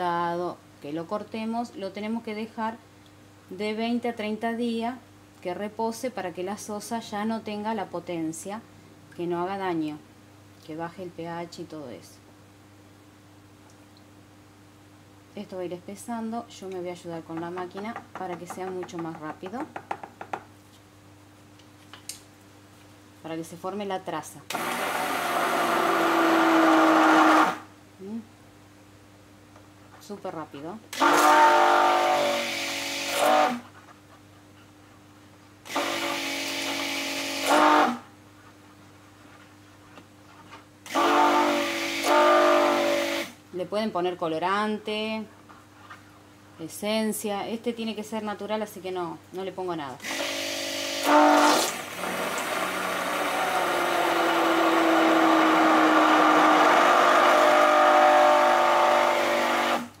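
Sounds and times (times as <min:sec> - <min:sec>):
stick blender running: 0:24.5 - 0:27.7, 0:31.0 - 0:33.6, 0:35.7 - 0:38.0, 0:40.9 - 0:43.4, 0:50.0 - 1:00.0.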